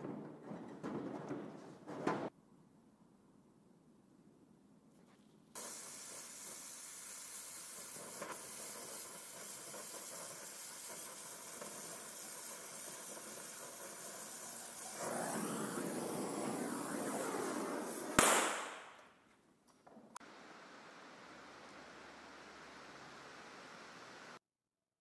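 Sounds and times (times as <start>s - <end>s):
welding torch hissing: 5.6s - 18.8s.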